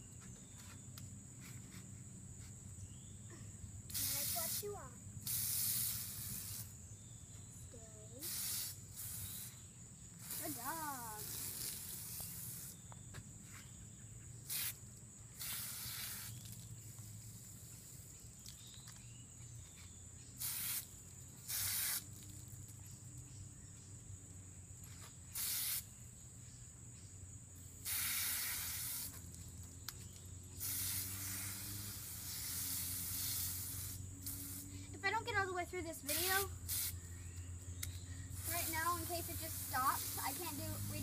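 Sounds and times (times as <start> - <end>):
hose nozzle spraying water: 3.9 - 6.7, 10.2 - 12.8, 15.4 - 16.7, 20.4 - 22.3, 25.4 - 25.9, 27.8 - 29.4, 30.6 - 34.7, 36.1 - 37.0, 38.3 - 41.0.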